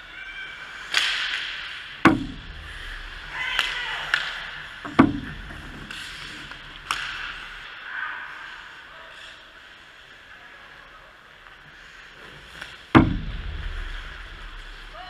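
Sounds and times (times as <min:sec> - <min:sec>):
hockey sticks and puck clacking: 0:00.4 - 0:02.3, 0:02.9 - 0:07.9, 0:11.3 - 0:13.1
loud deep knocks: 0:02.1 - 0:03.3, 0:04.9 - 0:05.7, 0:13.0 - 0:15.0
skates scraping ice: 0:05.5 - 0:12.9.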